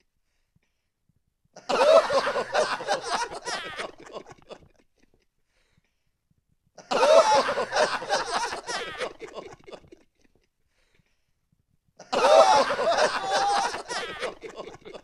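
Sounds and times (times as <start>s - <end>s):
crowd laughter sample: 1.6s - 5.2s, 6.8s - 10.5s, 12.0s - 15.0s.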